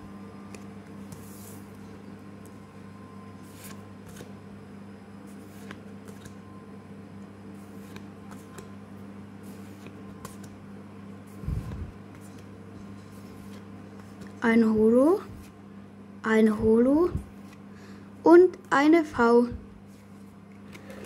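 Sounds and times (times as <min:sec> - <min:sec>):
low steady hum: 0:00.0 - 0:21.0
trading cards flipping: 0:00.5 - 0:02.6, 0:03.4 - 0:04.4, 0:05.3 - 0:06.4, 0:07.5 - 0:08.7, 0:09.4 - 0:10.6, 0:11.3 - 0:14.4.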